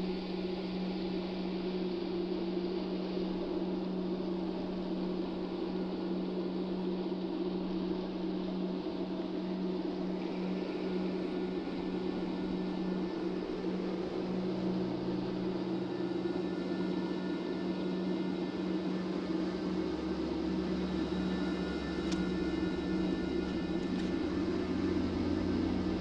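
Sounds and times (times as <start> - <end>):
low droning hum: 0.0 - 26.0.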